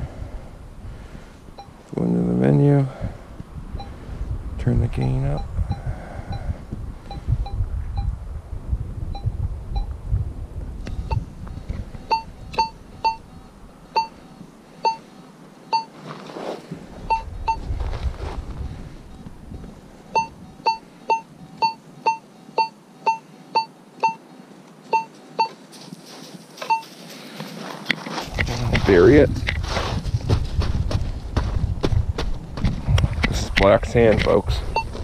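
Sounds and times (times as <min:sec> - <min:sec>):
metal detector beeps: 0:09.1 - 0:09.9, 0:11.0 - 0:11.2, 0:12.1 - 0:13.2, 0:13.9 - 0:14.2, 0:14.8 - 0:15.0, 0:15.7 - 0:16.0, 0:17.1 - 0:17.6, 0:20.1 - 0:24.2, 0:24.9 - 0:25.6, 0:26.6 - 0:26.9, 0:34.2 - 0:35.0.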